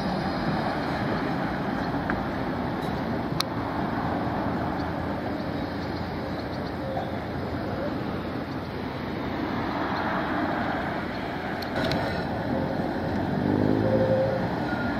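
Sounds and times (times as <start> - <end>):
street traffic: 0.0 - 14.9
tram rolling on track: 0.0 - 14.9.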